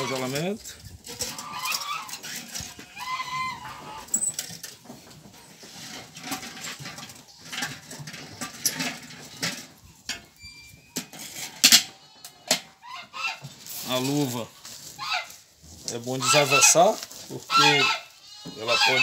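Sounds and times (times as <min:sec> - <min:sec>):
farm animals calling: 0:00.0 - 0:10.1, 0:10.7 - 0:19.0.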